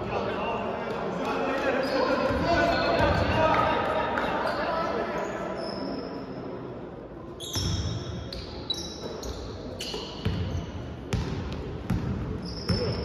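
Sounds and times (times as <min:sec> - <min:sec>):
sneakers squeaking on floor: 0:05.2 - 0:06.2, 0:07.4 - 0:13.0.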